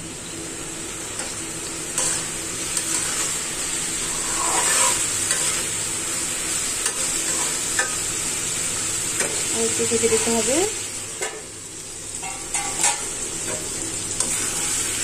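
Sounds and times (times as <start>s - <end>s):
vegetables sizzling in oil: 0.0s - 15.0s
metal spatula scraping pan: 4.0s - 5.7s.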